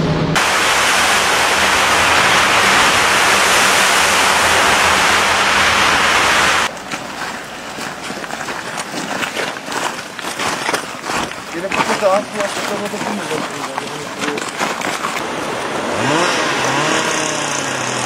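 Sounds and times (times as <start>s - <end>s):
rushing hiss in a tunnel: 0.4s - 6.7s
footsteps crunching on forest path: 6.7s - 16.8s.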